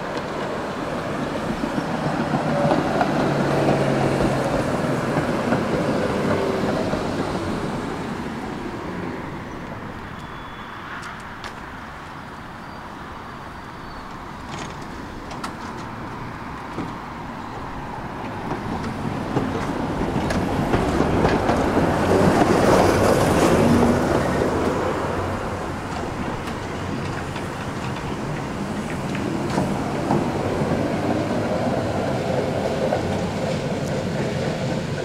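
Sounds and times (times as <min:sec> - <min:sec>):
tram rolling on track: 0:00.0 - 0:35.0
tram wheel clicks: 0:18.2 - 0:24.8, 0:25.5 - 0:35.0.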